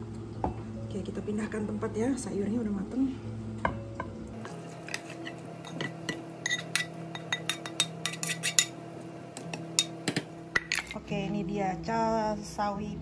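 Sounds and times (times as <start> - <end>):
metal utensil scraping a pan: 4.4 - 8.8.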